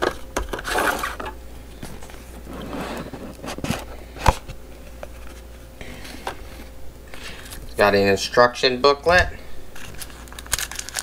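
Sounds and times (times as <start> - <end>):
cardboard rustling and scraping: 0.0 - 6.7.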